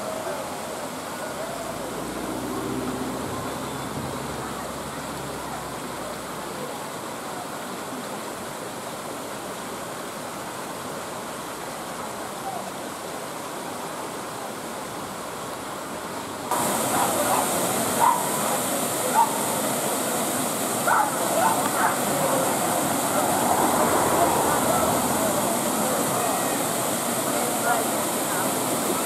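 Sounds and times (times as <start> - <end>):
faint voices: 0.0 - 8.7, 16.5 - 29.0
waterfall and stream rushing: 0.0 - 29.0.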